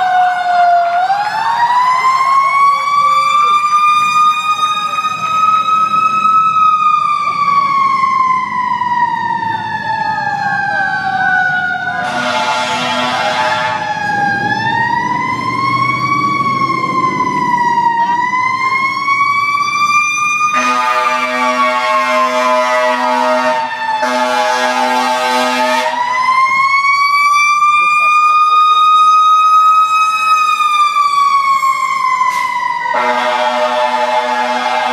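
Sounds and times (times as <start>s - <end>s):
fire truck siren wailing: 0.0s - 34.9s
air horn blasts: 12.0s - 13.9s, 20.5s - 26.0s, 32.9s - 34.9s.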